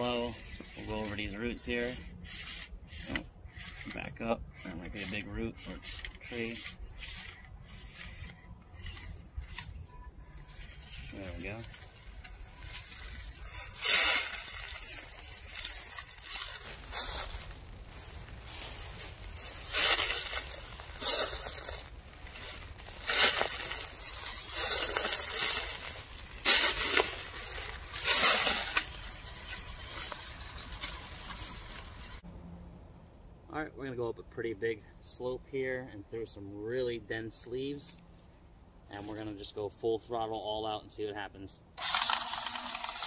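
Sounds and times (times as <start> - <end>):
dry leaves crunching: 10.4 - 32.2.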